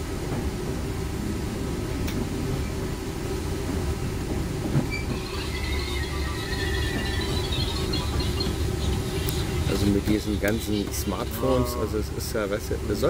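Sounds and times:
train wheels rumbling on track: 0.0s - 13.0s
train knock: 3.7s - 12.2s
high-pitched brake squeal: 4.8s - 12.0s.

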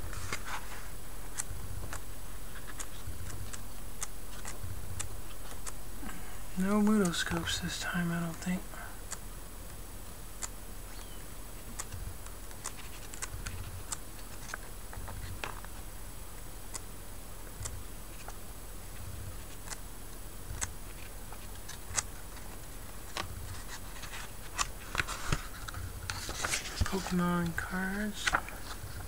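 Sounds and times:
catalog pages turning: 0.0s - 3.6s, 4.3s - 5.8s, 11.7s - 15.8s, 20.5s - 29.0s.

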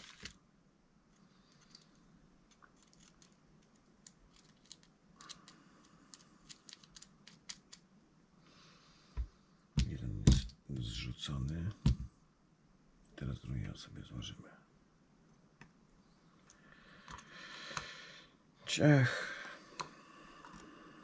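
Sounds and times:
small metal parts clicking: 1.5s - 7.8s.

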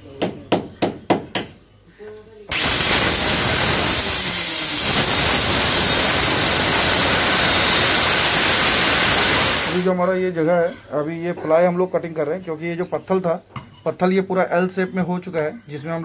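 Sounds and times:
electric cutter cutting plywood: 2.5s - 9.9s.

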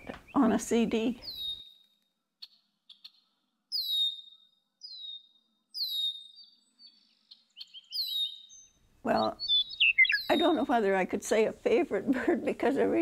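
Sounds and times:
bird whistling calls: 1.2s - 1.9s, 2.9s - 10.6s.

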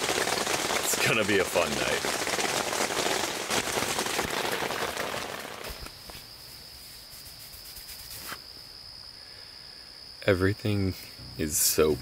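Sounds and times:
rain pattering on a tent: 0.0s - 6.2s.

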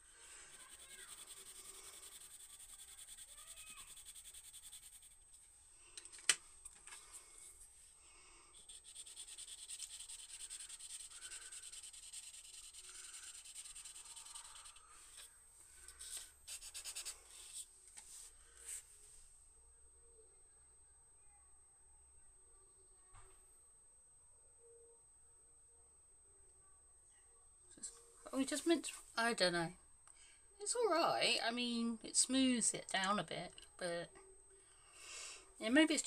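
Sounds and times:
pencil scratching on paper: 0.4s - 5.2s, 8.6s - 15.3s, 15.9s - 17.6s.

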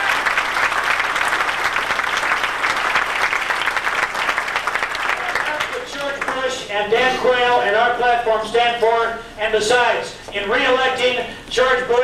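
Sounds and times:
crowd applauding: 0.0s - 6.5s.

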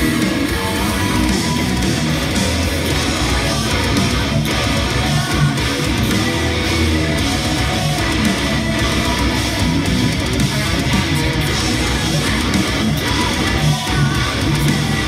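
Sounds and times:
electric guitar heavy metal riff: 0.0s - 15.0s.

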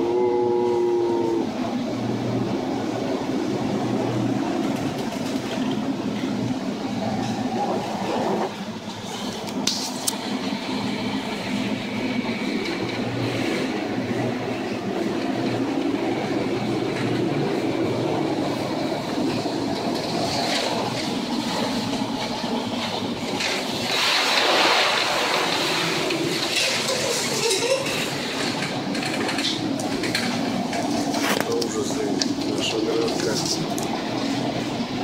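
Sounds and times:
heavy seas: 0.0s - 35.0s
storm wind: 0.0s - 35.0s
rush of spray: 23.8s - 27.1s.

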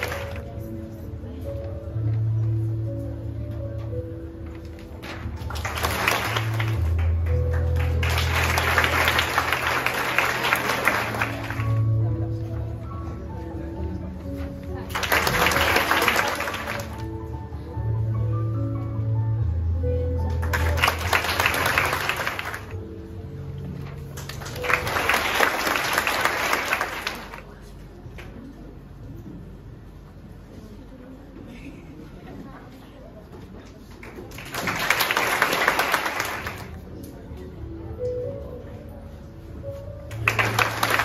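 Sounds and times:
applause: 0.0s - 0.6s, 5.0s - 12.0s, 14.9s - 17.1s, 20.4s - 22.8s, 24.2s - 27.7s, 34.0s - 36.8s, 40.1s - 41.0s
background music with low notes: 0.0s - 26.9s, 34.7s - 41.0s.

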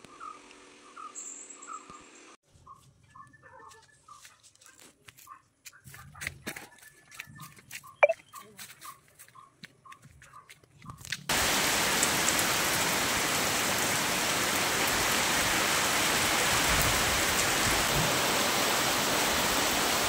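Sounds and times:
heavy rain pouring: 11.3s - 20.0s.

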